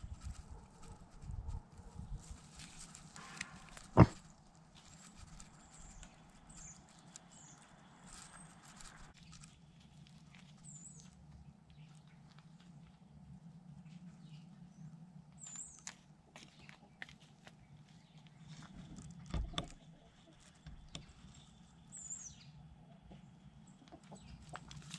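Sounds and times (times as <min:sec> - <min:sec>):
pig rustling and shuffling: 0:00.0 - 0:14.5
sharp knock: 0:03.3 - 0:04.2.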